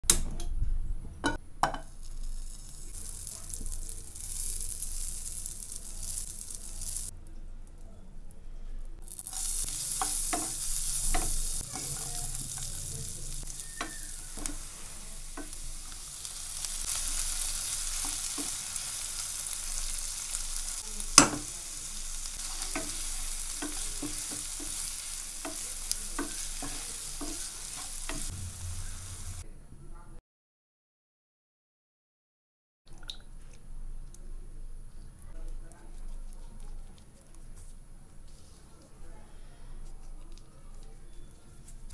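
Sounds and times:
onions sizzling in a pan: 0:01.6 - 0:07.1, 0:09.0 - 0:29.4.

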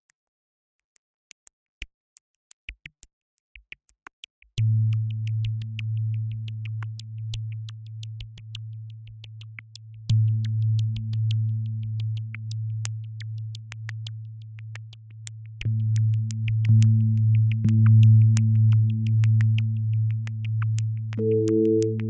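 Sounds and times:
electronic ticking beat: 0:15.8 - 0:22.0
low synthesizer drone: 0:21.2 - 0:22.0.

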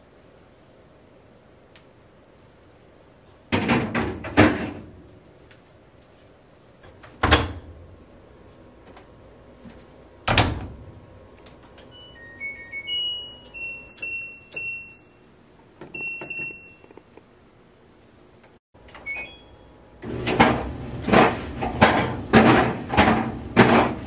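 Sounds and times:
dryer door thumping shut: 0:10.3 - 0:10.8.

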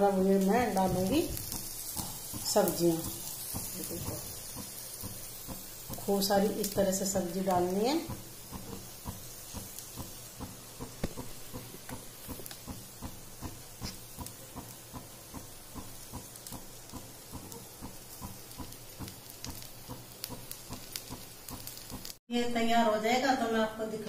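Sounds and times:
batter sizzling with small pops: 0:00.0 - 0:22.2.

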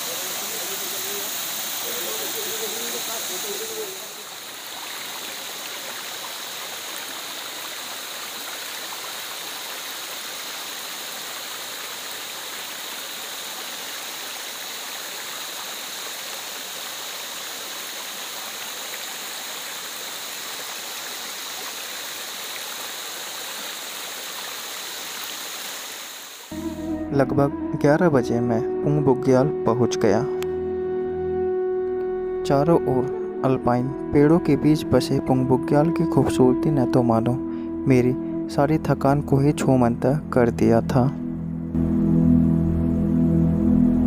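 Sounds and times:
stream splashing over rocks: 0:00.0 - 0:26.5.

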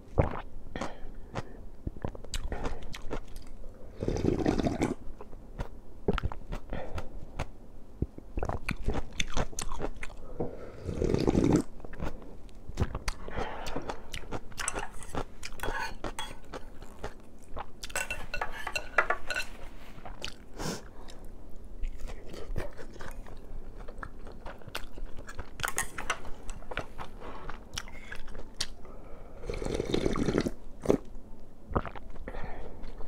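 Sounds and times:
slurping broth: 0:03.9 - 0:05.0, 0:10.5 - 0:11.7, 0:29.4 - 0:31.0
crunchy chewing: 0:08.4 - 0:10.2.

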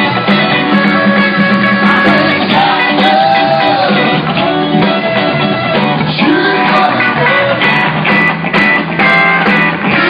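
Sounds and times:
saxophone and trumpet: 0:00.0 - 0:07.6, 0:08.9 - 0:10.0
electric guitar: 0:00.0 - 0:10.0
live rock band playing: 0:00.0 - 0:10.0.

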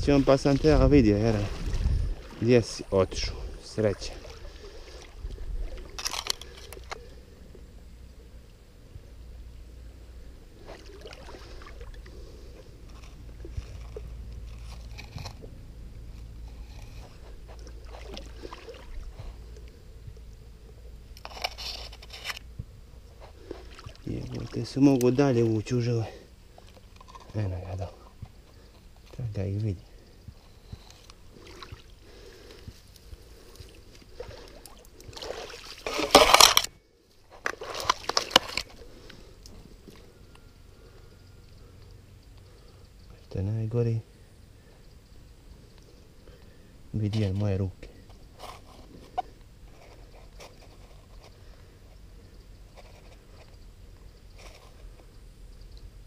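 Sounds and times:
grass rustling against camera: 0:00.0 - 0:08.3, 0:08.9 - 0:40.9, 0:41.5 - 0:56.0
steady low rumble: 0:00.0 - 0:35.3
hand moving in shallow water: 0:00.1 - 0:07.2, 0:16.2 - 0:20.8
hands splashing in stream water: 0:33.7 - 0:36.5.

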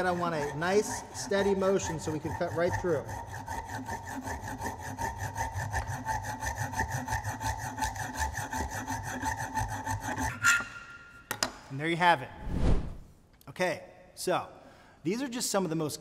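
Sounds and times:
hacksaw rasping through metal: 0:00.0 - 0:10.8.

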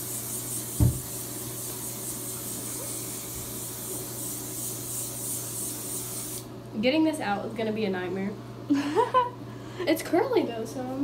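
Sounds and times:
aerosol can spraying hiss: 0:00.0 - 0:06.5
short thump: 0:00.8 - 0:01.1.

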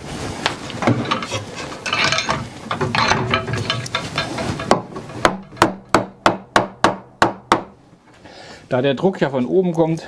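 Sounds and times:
clicking scraping and rattling: 0:00.7 - 0:05.6.

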